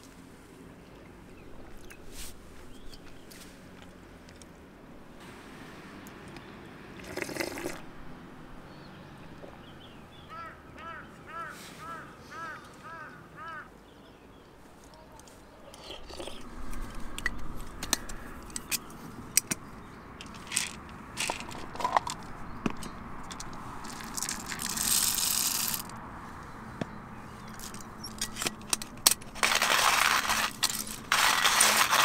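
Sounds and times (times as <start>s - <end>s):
crow cawing: 10.3s - 13.7s
objects clicking and clinking: 20.2s - 26.0s, 27.5s - 32.0s.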